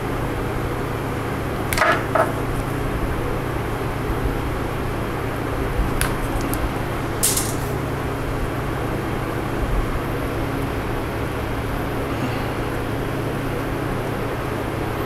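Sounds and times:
background hum: 0:00.0 - 0:15.0
wire rustling: 0:05.9 - 0:07.8.

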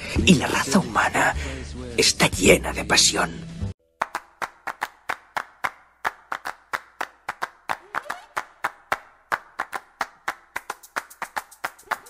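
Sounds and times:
rhythmic handclaps: 0:04.0 - 0:12.0.

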